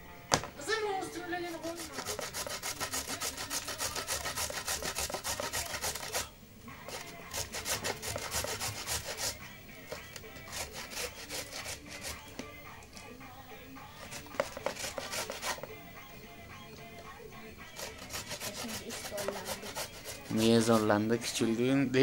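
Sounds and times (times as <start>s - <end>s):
carrot grated on metal grater: 1.4s - 6.3s, 6.9s - 12.3s, 14.0s - 15.7s, 17.7s - 21.0s.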